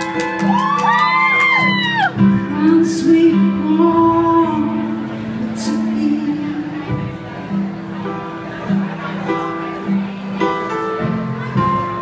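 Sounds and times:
piano chords: 0:00.0 - 0:12.0
woman singing wordless notes: 0:02.4 - 0:07.4.

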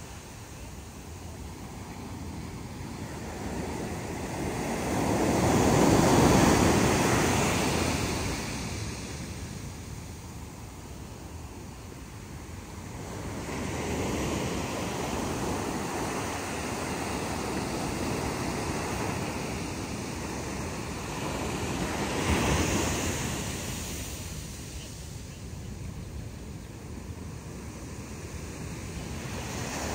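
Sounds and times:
waves washing up a beach: 0:00.0 - 0:29.9.

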